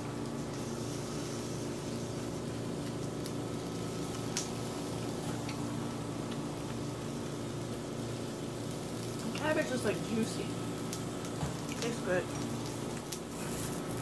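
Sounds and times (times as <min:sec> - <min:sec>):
even hiss: 0:00.0 - 0:05.5.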